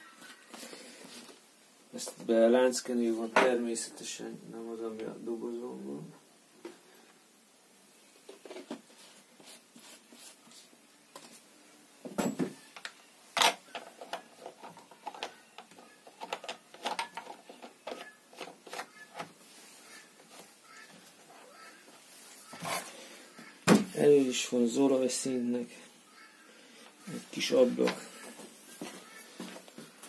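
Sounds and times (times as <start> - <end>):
plastic clicks and knocks: 12.8 - 19.3.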